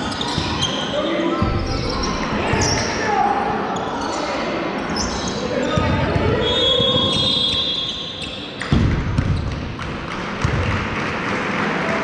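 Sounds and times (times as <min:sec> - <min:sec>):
referee's whistle: 0:06.4 - 0:08.5
basketball bouncing on floor: 0:08.6 - 0:10.8.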